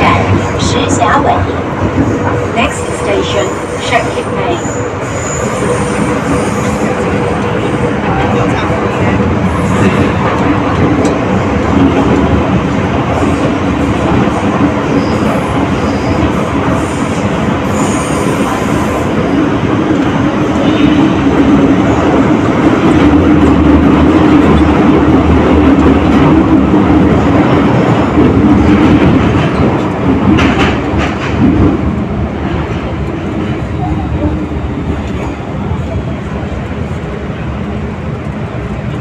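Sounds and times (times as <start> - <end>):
train wheels rumbling on rail: 0.0 - 39.0.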